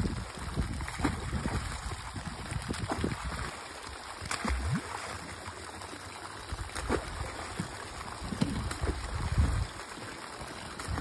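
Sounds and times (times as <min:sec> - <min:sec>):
water gushing into pond: 0:00.0 - 0:11.0
fish splashing into water: 0:00.6 - 0:05.8, 0:06.4 - 0:10.0.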